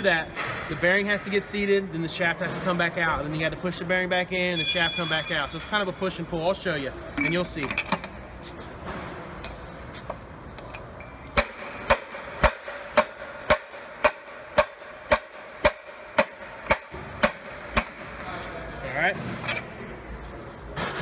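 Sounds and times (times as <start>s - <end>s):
metal strikes with high ring: 4.4s - 6.3s, 11.3s - 18.4s.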